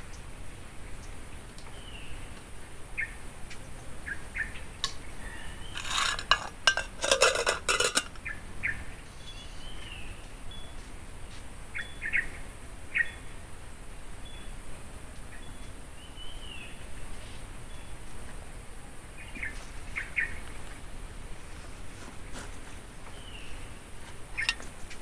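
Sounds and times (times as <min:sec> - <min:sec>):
pot lid clattering on pot: 0:05.8 - 0:08.3.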